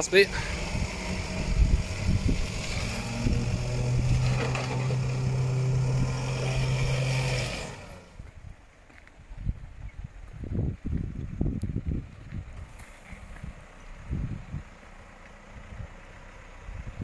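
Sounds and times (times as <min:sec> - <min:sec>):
winch and engine drone: 0:00.0 - 0:08.2.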